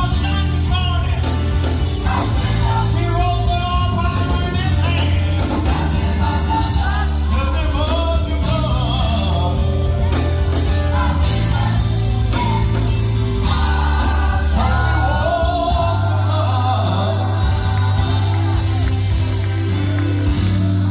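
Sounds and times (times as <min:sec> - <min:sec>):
band with heavy bass line: 0:00.0 - 0:20.9
choir singing: 0:05.6 - 0:07.4, 0:10.8 - 0:19.9.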